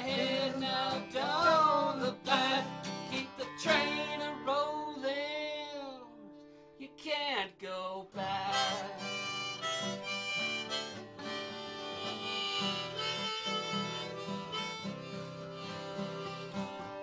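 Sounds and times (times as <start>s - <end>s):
strummed acoustic guitars: 0.0s - 7.4s, 8.1s - 17.0s
blues harmonica solo: 8.4s - 17.0s.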